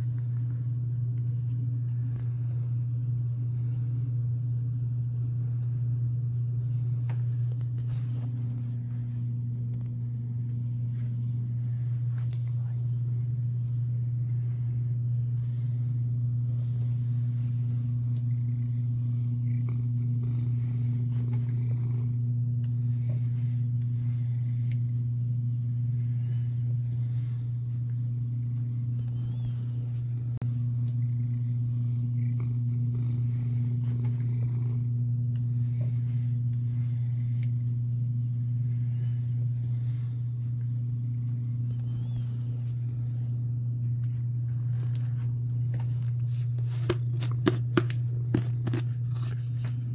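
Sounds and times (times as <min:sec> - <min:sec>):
steady low hum: 0:00.0 - 0:49.9.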